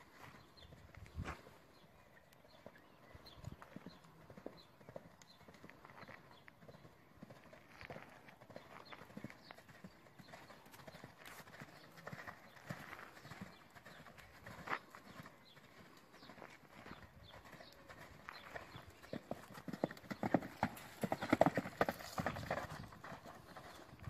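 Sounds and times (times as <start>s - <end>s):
horse hooves clip-clopping: 3.5s - 24.0s.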